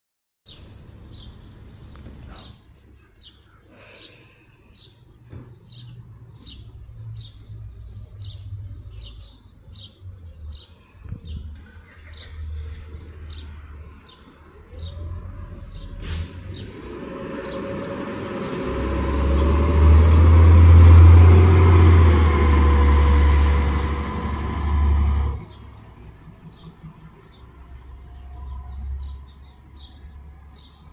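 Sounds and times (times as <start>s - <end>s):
bird chirping: 0.5s - 16.0s
faint traffic rumble: 0.5s - 30.9s
road noise: 0.5s - 30.9s
bus engine passing by: 5.2s - 30.9s.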